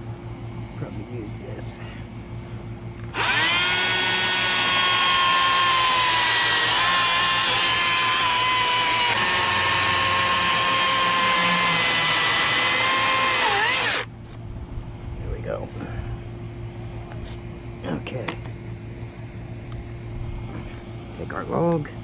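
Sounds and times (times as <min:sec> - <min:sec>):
battery chainsaw cutting log: 0:03.1 - 0:14.1.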